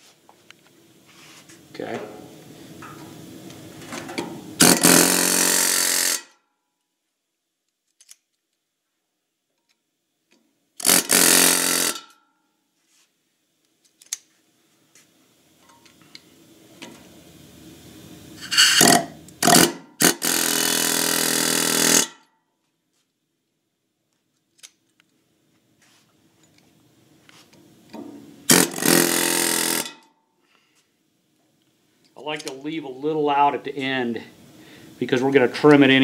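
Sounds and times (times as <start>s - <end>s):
pneumatic air hammer buzzing: 3.8s - 6.4s, 10.8s - 12.2s, 18.4s - 22.3s, 28.5s - 30.1s.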